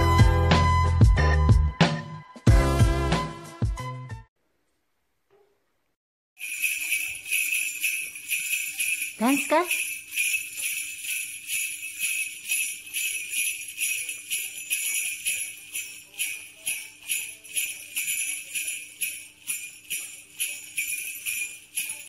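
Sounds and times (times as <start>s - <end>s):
jingle bells shaken: 6.4s - 22.0s.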